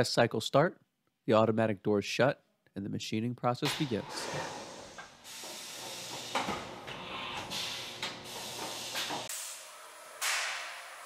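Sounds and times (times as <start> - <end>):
air hissing with bursts: 3.7 - 11.0.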